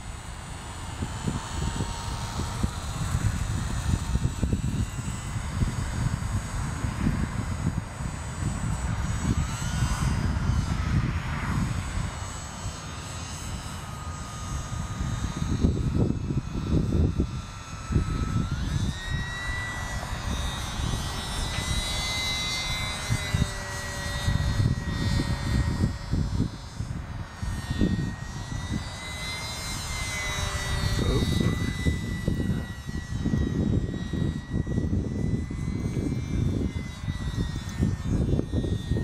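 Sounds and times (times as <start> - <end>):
model plane motor whining: 0.0 - 39.0.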